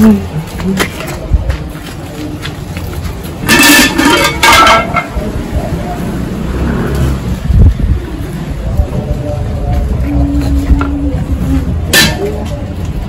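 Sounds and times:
steady low rumble: 7.2s - 13.0s.

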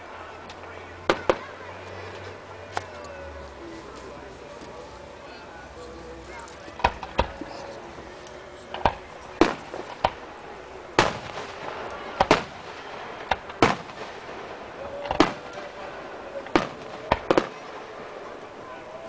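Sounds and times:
fireworks shells bursting: 6.6s - 18.6s.

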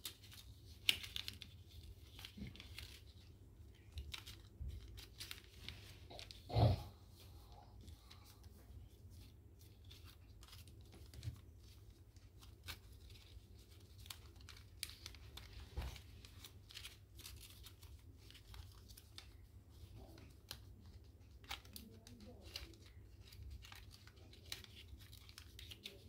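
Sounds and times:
paper crinkling and rustling: 0.0s - 26.0s.

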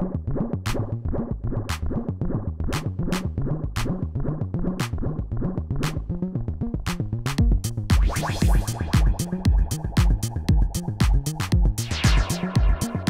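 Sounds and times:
fast synth bass line: 0.0s - 13.0s
drum machine beat with hi-hat ticks: 6.8s - 13.0s.

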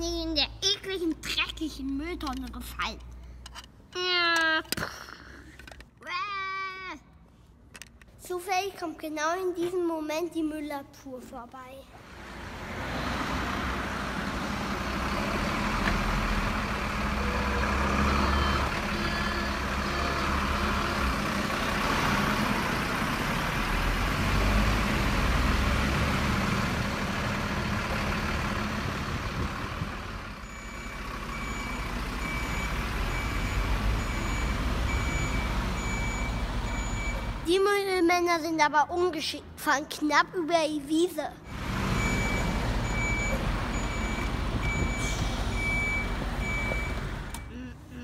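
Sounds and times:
garbage truck engine running: 12.3s - 37.4s, 41.5s - 47.5s
reversing alarm beeping: 17.2s - 20.9s, 30.4s - 37.3s, 41.5s - 47.6s.

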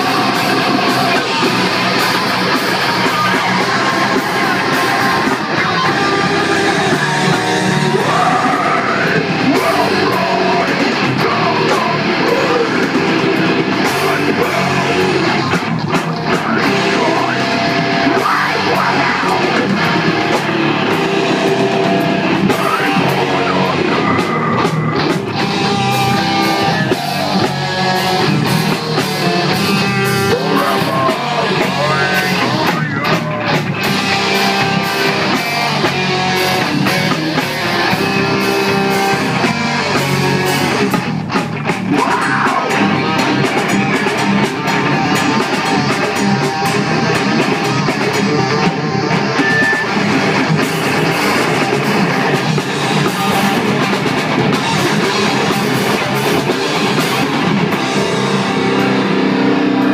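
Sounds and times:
person singing into microphone: 0.0s - 15.6s, 16.3s - 20.0s, 22.4s - 24.8s, 29.8s - 33.6s
heavy metal band playing: 0.0s - 59.9s.

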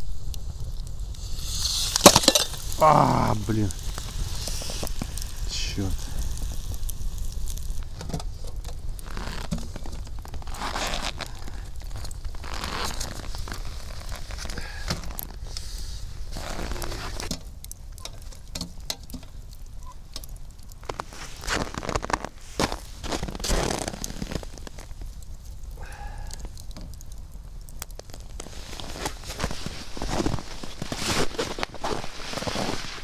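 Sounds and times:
campfire crackling and popping: 0.0s - 33.0s
fire hissing: 0.0s - 33.0s.

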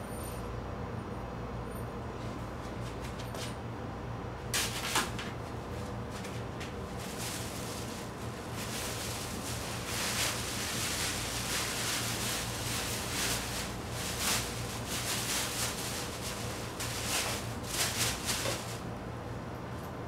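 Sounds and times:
steady low hum: 0.0s - 20.0s
bag rustling: 6.8s - 18.8s.

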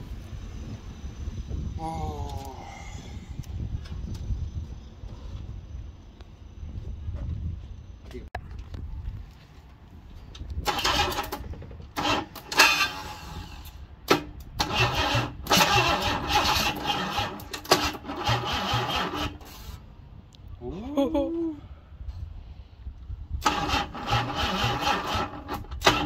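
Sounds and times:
starter motor cranking engine: 10.6s - 19.8s, 23.4s - 26.0s.

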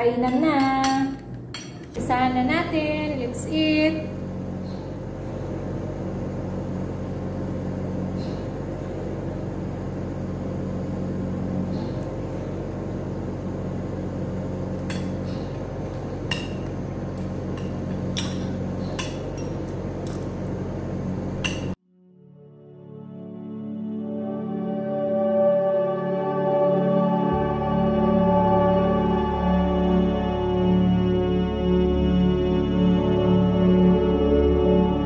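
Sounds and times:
low room hum: 0.0s - 21.8s
cutlery clinking on a plate: 0.3s - 2.0s.

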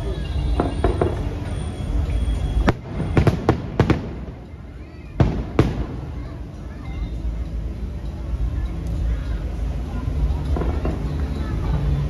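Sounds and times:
fireworks bursting: 0.0s - 6.5s.

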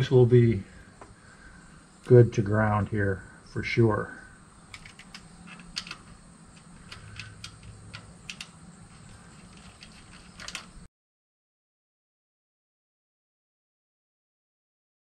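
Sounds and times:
faint low hum: 0.0s - 10.9s
metallic clicks of hand tools: 4.7s - 10.9s.

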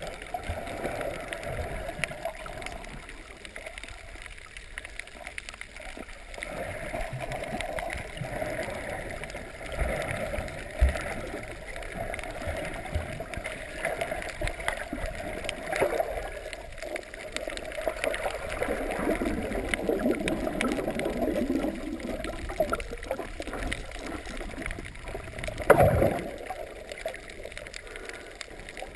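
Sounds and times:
faint clicks: 0.0s - 28.9s
muffled underwater gurgling: 6.0s - 28.9s
short water rush: 17.4s - 28.9s.

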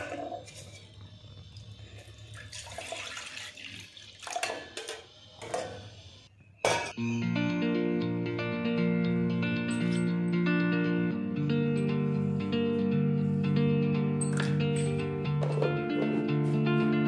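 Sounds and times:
milk pouring into saucepan: 1.9s - 4.8s
steel pots clinking: 4.2s - 5.8s
guitar music: 7.0s - 17.0s.

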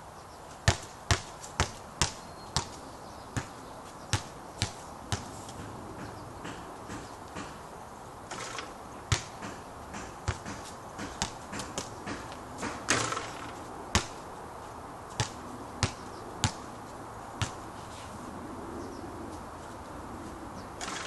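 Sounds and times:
basketball bouncing on court: 0.7s - 2.8s, 3.4s - 5.3s, 8.3s - 14.2s, 15.2s - 16.6s, 17.4s - 17.6s.

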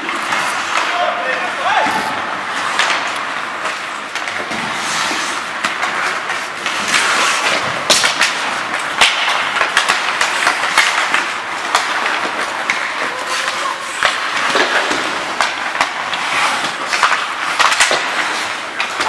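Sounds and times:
hockey sticks and puck clacking: 0.0s - 19.0s
skates scraping ice: 0.0s - 19.0s.

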